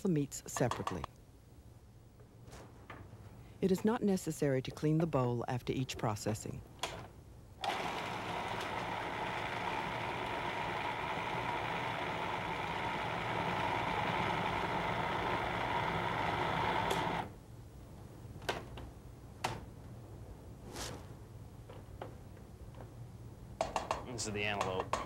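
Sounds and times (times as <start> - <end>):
food processor grinding: 7.6 - 17.3.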